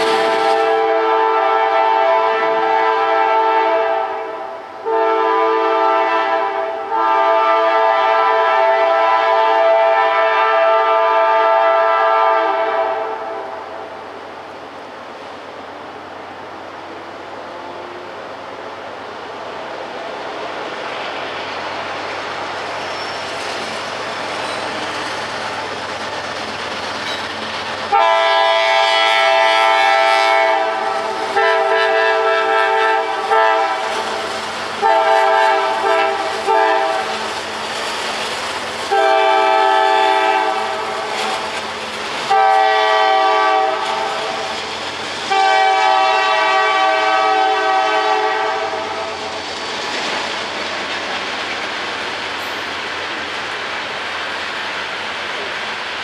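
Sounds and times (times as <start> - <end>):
train air horn blasts: 0.0 - 13.6, 27.9 - 37.4, 38.9 - 41.5, 42.3 - 44.6, 45.2 - 49.2
train rolling past: 0.0 - 56.0
diesel locomotive rumble: 11.8 - 56.0.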